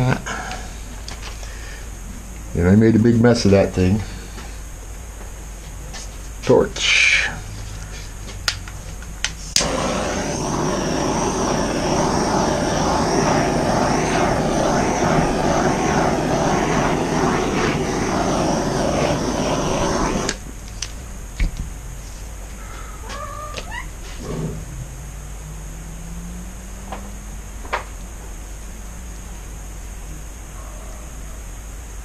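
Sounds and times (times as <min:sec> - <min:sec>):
torch flame hissing: 0:00.0 - 0:01.9, 0:09.4 - 0:20.9
torch igniter clicks: 0:08.5 - 0:16.0, 0:19.1 - 0:21.5.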